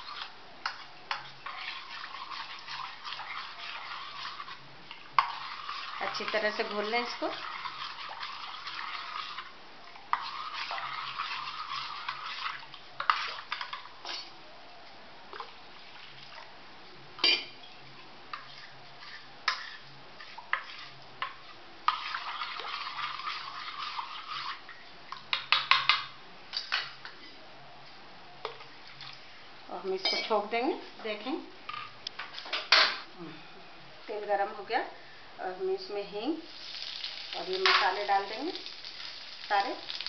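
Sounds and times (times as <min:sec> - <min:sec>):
spoon swishing through batter: 0:00.0 - 0:13.7, 0:18.3 - 0:24.8.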